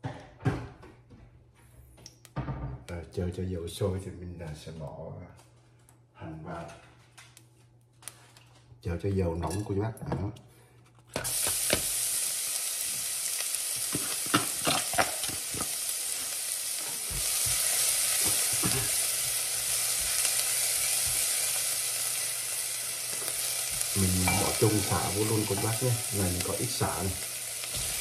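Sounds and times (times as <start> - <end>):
onion sizzling in hot oil: 11.2 - 28.0.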